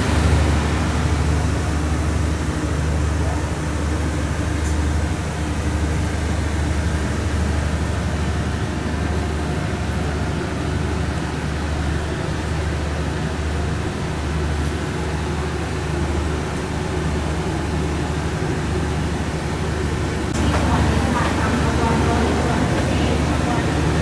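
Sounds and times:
train carriage rumble and hiss: 0:00.0 - 0:24.0.

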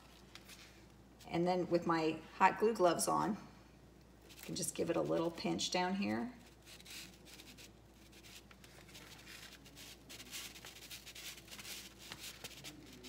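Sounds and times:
glove rubbing tape: 0:06.5 - 0:13.0.

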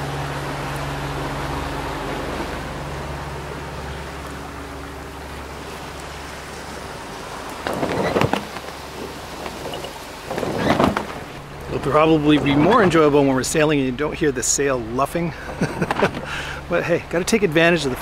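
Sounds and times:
low steady hum: 0:00.0 - 0:18.0
water washing along hulls: 0:00.0 - 0:18.0
sailcloth flapping: 0:07.5 - 0:12.9.

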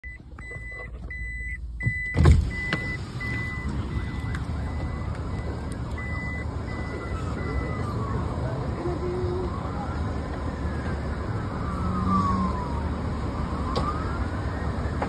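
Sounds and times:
road noise inside moving car: 0:00.0 - 0:15.0
power window thump and rush: 0:01.8 - 0:03.9.

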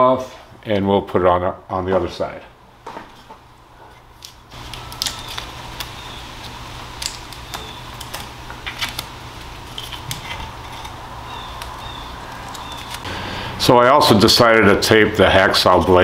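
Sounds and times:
steady low hum: 0:02.3 - 0:16.0
tape being peeled off: 0:04.1 - 0:13.1.

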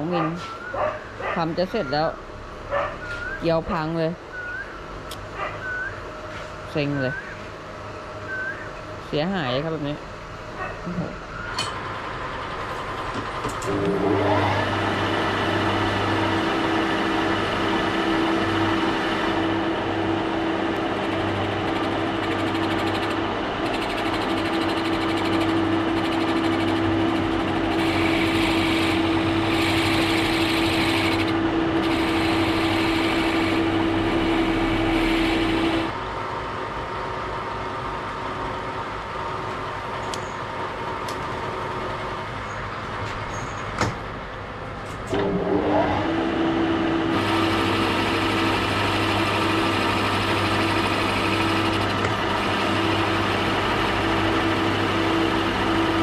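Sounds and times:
lathe humming: 0:11.4 - 0:36.0, 0:45.1 - 0:56.0.

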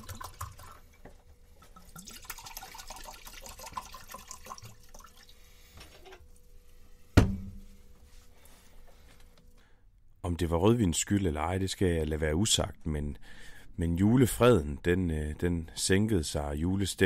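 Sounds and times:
wine pouring into glass: 0:01.6 - 0:05.4.

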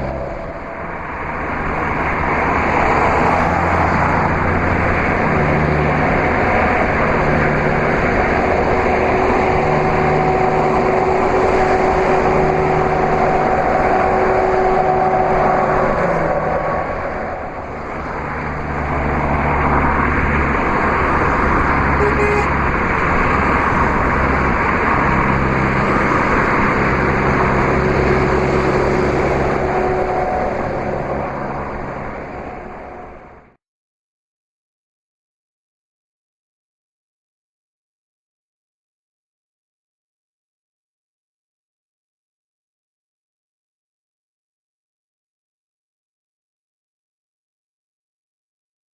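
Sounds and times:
car road and wind noise: 0:00.0 - 0:33.6
low engine drone: 0:00.0 - 0:33.6.

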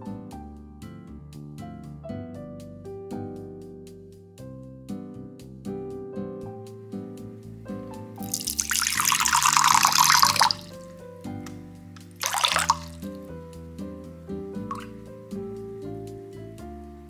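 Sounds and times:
soft piano music: 0:00.0 - 0:17.0
water pouring into jug: 0:08.2 - 0:10.8, 0:12.2 - 0:13.1, 0:14.7 - 0:14.9.

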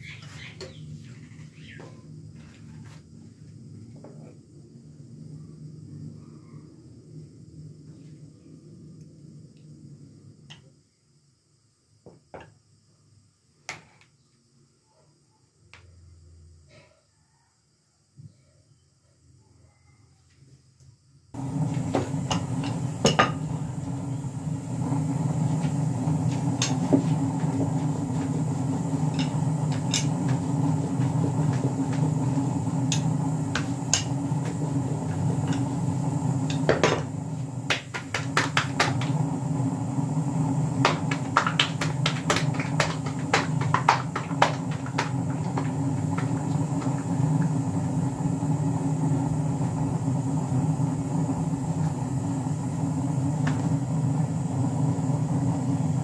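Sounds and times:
steady low hum: 0:21.3 - 0:56.0.

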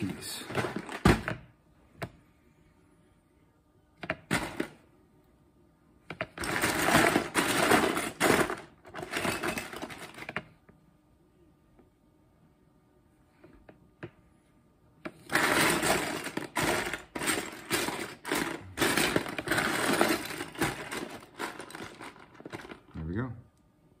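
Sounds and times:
plastic pieces clattering: 0:00.3 - 0:01.4, 0:06.3 - 0:10.4, 0:15.2 - 0:22.9
plastic pieces rattling: 0:00.4 - 0:01.2, 0:06.4 - 0:10.4, 0:15.2 - 0:23.0.

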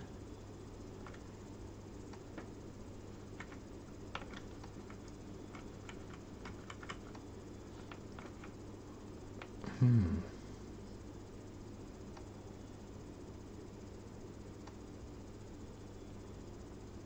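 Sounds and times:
keyboard keys clicking: 0:03.4 - 0:08.6.

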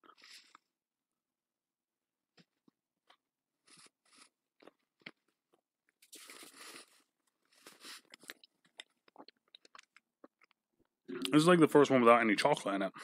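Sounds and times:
chewing and crunching cookie: 0:00.0 - 0:00.7, 0:02.3 - 0:11.0.

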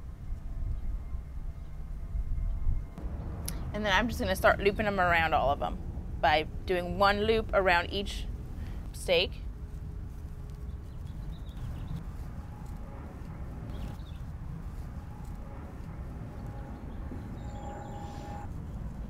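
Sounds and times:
low outdoor rumble: 0:00.0 - 0:19.0
faint rustles: 0:08.2 - 0:19.0.

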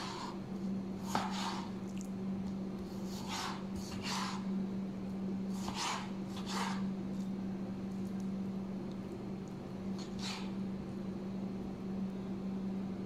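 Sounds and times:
steady low hum: 0:00.0 - 0:13.0
knife slicing on cutting board: 0:01.0 - 0:01.8, 0:03.0 - 0:04.5, 0:05.5 - 0:06.9, 0:10.0 - 0:10.6.

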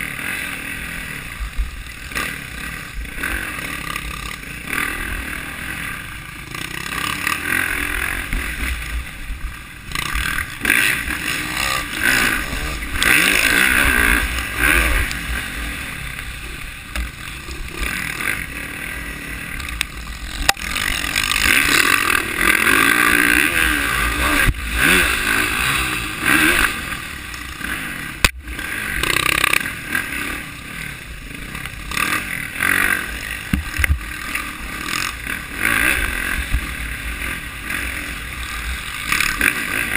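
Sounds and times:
dirt bike engine revving: 0:00.0 - 0:39.9
sharp knocks from rough ground: 0:33.5 - 0:34.1.

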